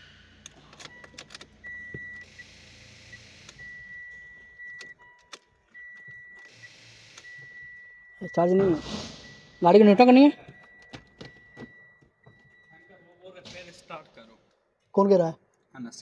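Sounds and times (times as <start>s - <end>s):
high electronic warning beep: 0.0s - 13.2s
car key jangling in ignition: 0.4s - 2.2s, 3.5s - 6.6s, 10.3s - 12.9s.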